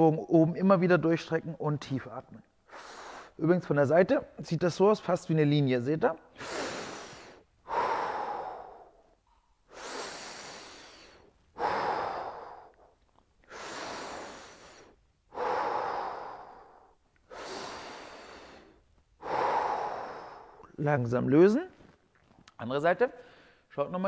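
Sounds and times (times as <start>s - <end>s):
man breathing deeply: 2.6s - 3.4s, 6.3s - 20.8s.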